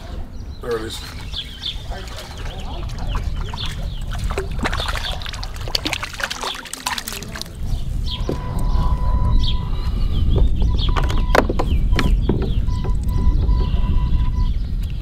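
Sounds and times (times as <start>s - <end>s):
fish splashing in water: 1.0s - 7.8s.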